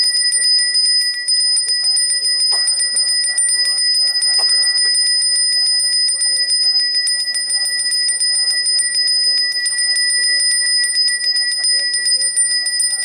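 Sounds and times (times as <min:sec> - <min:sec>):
hand bell ringing rapidly: 0:00.0 - 0:13.0.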